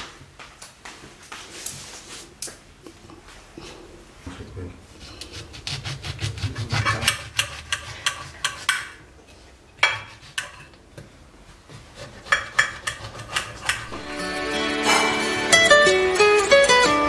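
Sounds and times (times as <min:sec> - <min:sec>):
plucked guitar music: 0:13.9 - 0:17.0.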